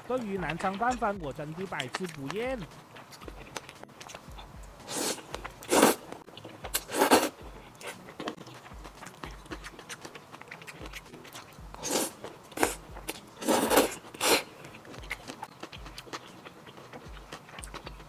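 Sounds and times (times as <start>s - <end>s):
soft chewing and mouth clicks: 0.0s - 18.0s
person slurping noodles: 4.8s - 6.1s, 6.7s - 8.0s, 11.8s - 14.6s.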